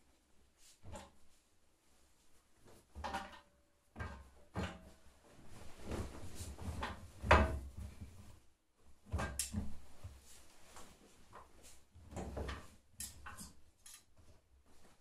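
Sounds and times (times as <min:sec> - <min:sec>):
cloth rustling: 0:05.0 - 0:07.1.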